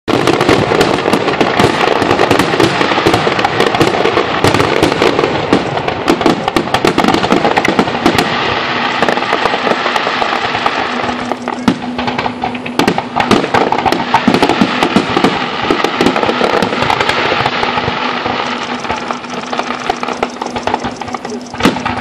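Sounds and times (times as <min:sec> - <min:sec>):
fireworks bursts and crackle: 0:00.1 - 0:22.0.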